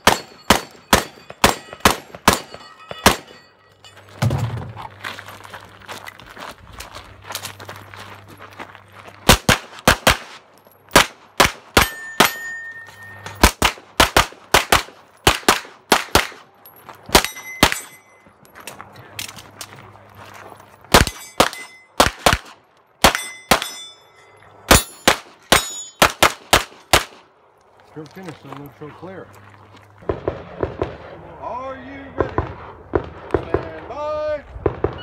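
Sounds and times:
metallic ring of steel targets: 0:00.0 - 0:04.8, 0:11.7 - 0:13.5, 0:16.6 - 0:18.7, 0:20.9 - 0:22.1, 0:23.0 - 0:26.2.

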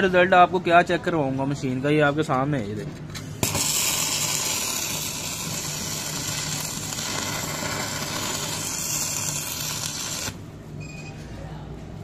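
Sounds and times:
welding arc crackling sizzle: 0:03.4 - 0:10.5.

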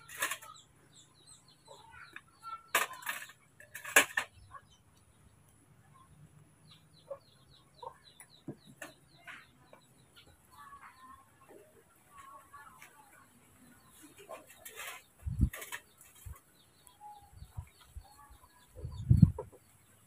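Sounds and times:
birds chirping: 0:00.0 - 0:20.0
cups clattering on a tray: 0:02.1 - 0:04.3.

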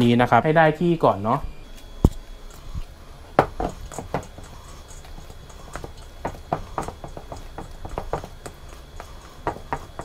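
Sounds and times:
spatula stirring batter in metal bowl: 0:02.4 - 0:10.0.

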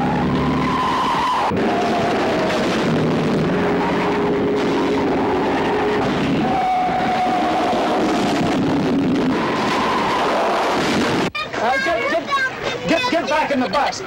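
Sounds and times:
car engine: 0:00.0 - 0:11.3.

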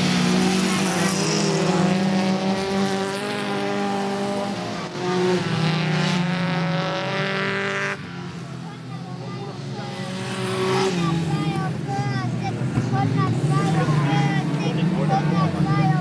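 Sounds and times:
race car engines accelerating: 0:00.0 - 0:16.0.

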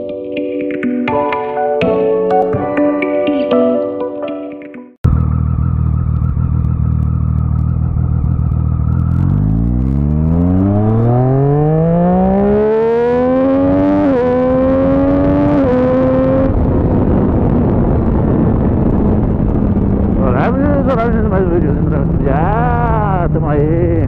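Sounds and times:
motorcycle engine accelerating: 0:05.0 - 0:24.0.

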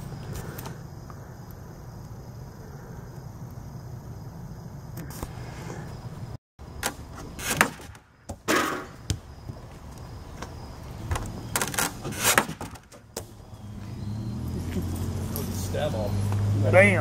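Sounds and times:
wooden knocks and thumps: 0:10.4 - 0:13.3.

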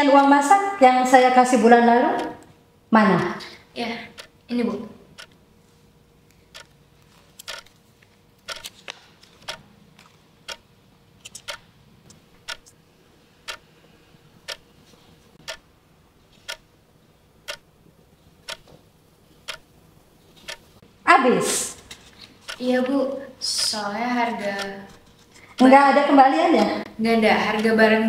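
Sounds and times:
clock ticking: 0:00.0 - 0:02.6, 0:03.2 - 0:05.4, 0:06.5 - 0:06.8, 0:07.4 - 0:07.7, 0:08.4 - 0:08.7, 0:10.5 - 0:11.7, 0:12.4 - 0:12.8, 0:13.5 - 0:13.7, 0:14.4 - 0:14.6, 0:15.4 - 0:15.7, 0:16.4 - 0:16.7, 0:17.4 - 0:17.8, 0:18.4 - 0:18.8, 0:19.4 - 0:19.7, 0:20.4 - 0:20.7, 0:22.4 - 0:28.0
faint steady hum: 0:00.0 - 0:28.0
irregular clicks: 0:06.3 - 0:07.8, 0:08.4 - 0:12.8, 0:15.4 - 0:15.6, 0:17.5 - 0:17.7, 0:18.5 - 0:18.8, 0:20.4 - 0:20.7, 0:21.9 - 0:22.7.

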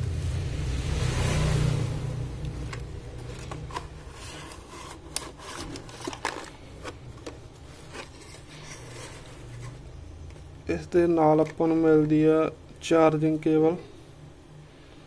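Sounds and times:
cardboard and plastic scraping: 0:02.6 - 0:10.5.

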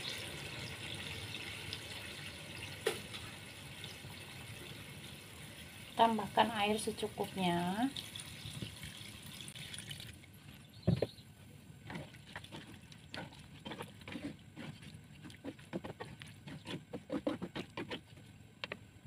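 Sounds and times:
water pouring into a wok: 0:07.9 - 0:10.2
liquid sloshing: 0:11.8 - 0:18.2.

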